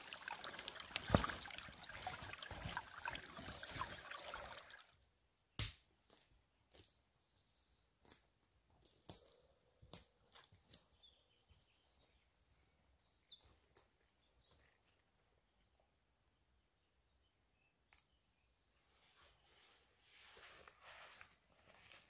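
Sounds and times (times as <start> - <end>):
footsteps on woodland floor: 6.0 - 11.0.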